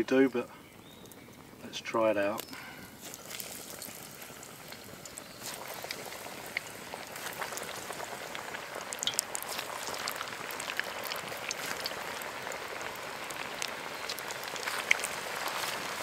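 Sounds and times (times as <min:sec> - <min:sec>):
deep-frying sizzle with pops: 0:00.0 - 0:16.0.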